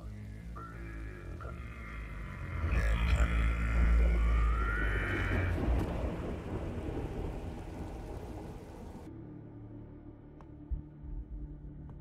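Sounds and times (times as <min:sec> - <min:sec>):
rain hiss: 0:00.0 - 0:09.1
rolling thunder rumble: 0:03.3 - 0:09.1.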